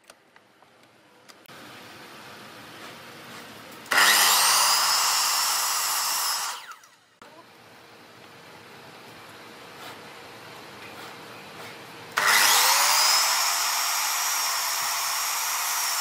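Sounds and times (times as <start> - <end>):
power tool motor spinning: 3.9 - 7.0, 12.2 - 16.0.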